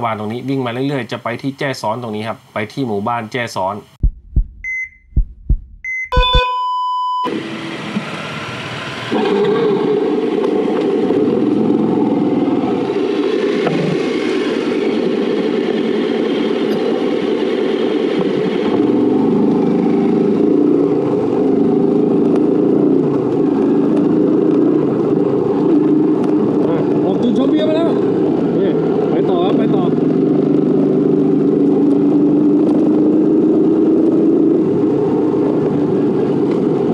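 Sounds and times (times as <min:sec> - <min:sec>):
electronic beeps and tones: 0:04.6 - 0:07.3
motorcycle engine: 0:07.3 - 0:36.9.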